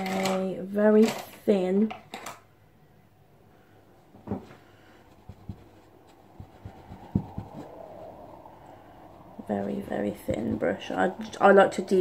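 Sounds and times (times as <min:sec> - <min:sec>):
faint rubbing: 0:04.0 - 0:12.0
soft knocks and taps: 0:04.2 - 0:07.8.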